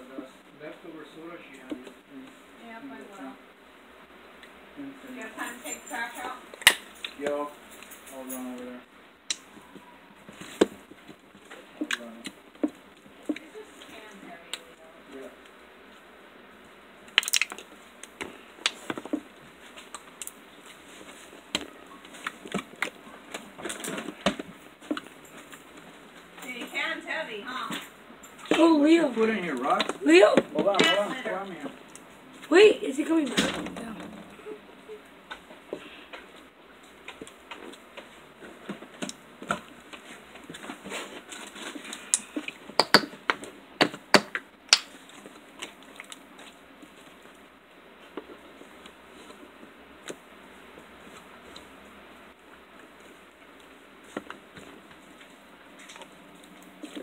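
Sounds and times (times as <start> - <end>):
slime squelching clicks and pops: 17.1 - 17.6
small clicks and pops: 17.1 - 18.8, 44.2 - 45.0
slime squished by hand: 17.1 - 18.9.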